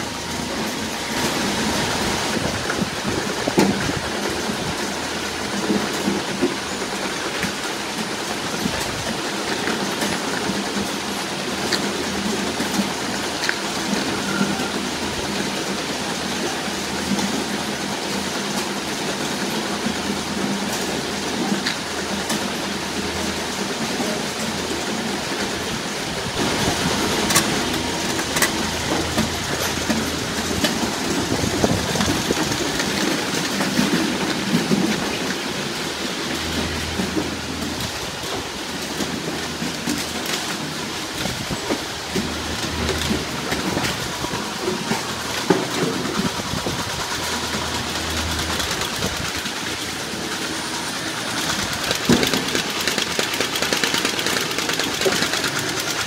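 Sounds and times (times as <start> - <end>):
conveyor machinery rattle and hum: 0.0 - 56.0
sharp clicks and knocks: 51.4 - 56.0.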